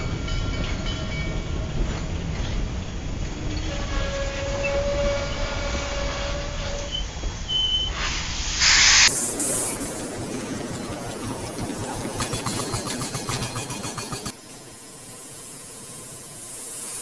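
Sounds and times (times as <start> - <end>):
steam train rumbling on rails: 0.0 - 17.0
steam hiss: 3.8 - 17.0.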